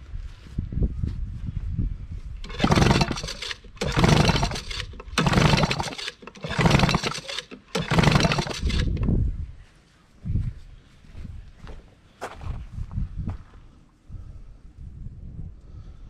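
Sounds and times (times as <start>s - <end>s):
engine spinning over: 2.4s - 9.1s
outboard recoil starter pulls: 2.4s - 9.1s.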